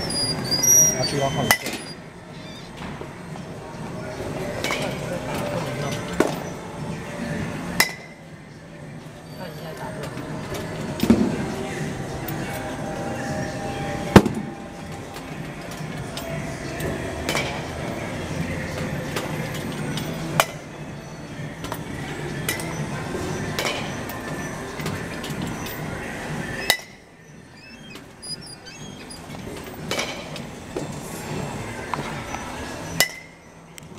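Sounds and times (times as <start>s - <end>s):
steady background hum: 0.0s - 33.9s
baseball bat hitting balls: 7.7s - 8.2s, 13.9s - 20.9s, 21.6s - 24.2s, 26.6s - 27.1s, 29.4s - 31.0s, 32.9s - 33.4s.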